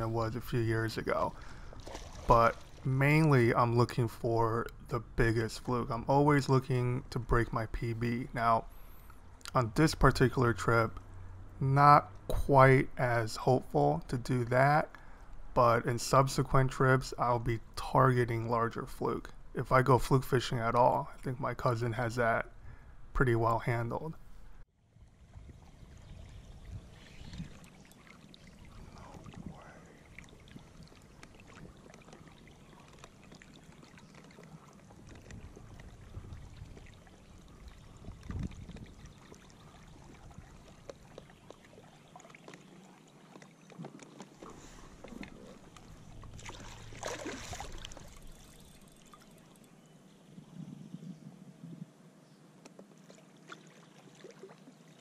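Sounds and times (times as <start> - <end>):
water lapping and trickling: 0.0 - 11.5, 24.8 - 50.7, 52.6 - 55.0
net splash in water: 1.8 - 2.9, 46.4 - 48.2.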